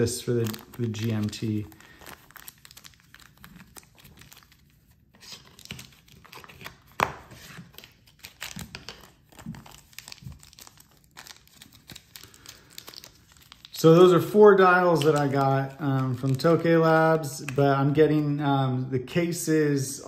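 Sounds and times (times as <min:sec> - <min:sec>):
plastic bag crinkling: 0:00.0 - 0:06.8, 0:08.2 - 0:16.8.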